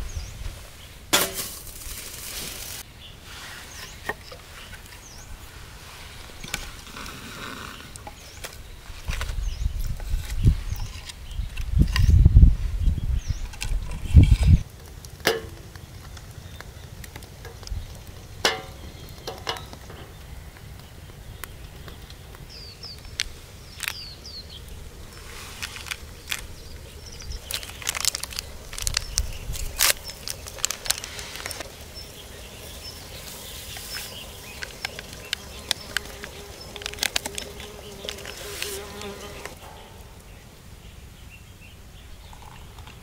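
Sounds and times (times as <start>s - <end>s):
campfire crackling and popping: 14.5s - 40.4s
fly buzzing: 34.1s - 39.6s.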